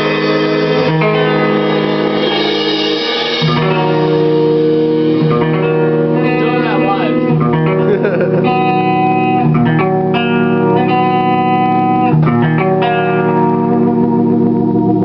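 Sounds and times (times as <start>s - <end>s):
electric guitar chords: 0.0s - 15.0s.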